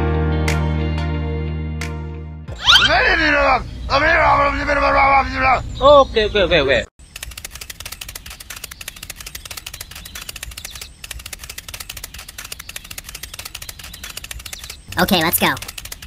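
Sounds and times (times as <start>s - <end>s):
rapid light clicks: 7.0s - 15.0s, 15.6s - 16.0s.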